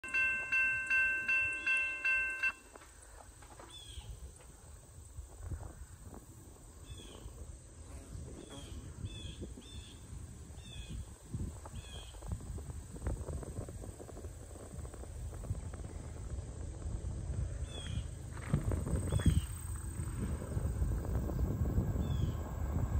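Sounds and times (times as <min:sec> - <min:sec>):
railroad crossing bell ringing: 0:00.0 - 0:03.1.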